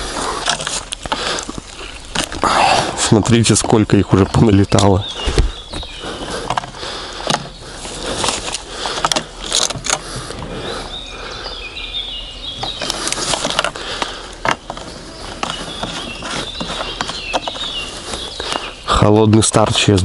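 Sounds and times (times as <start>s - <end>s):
birds chirping: 0.0s - 20.0s
chainsaw clicks and knocks: 8.2s - 10.2s, 12.6s - 16.0s.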